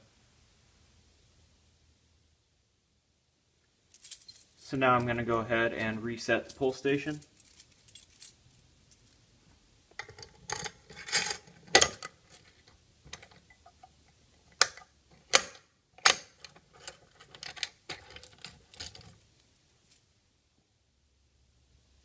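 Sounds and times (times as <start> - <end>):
metal clicks and rattles: 9.9 - 19.5.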